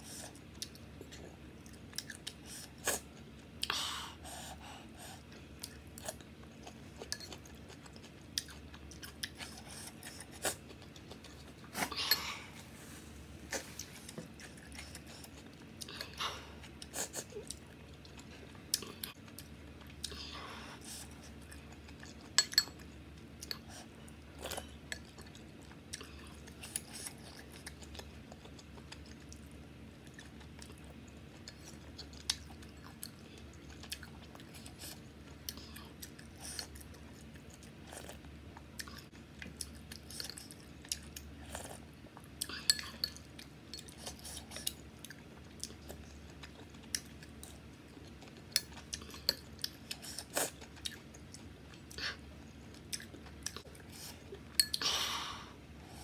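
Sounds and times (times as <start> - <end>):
chewing and wet mouth noises: 0.1 - 3.8, 5.0 - 12.5, 13.5 - 54.8.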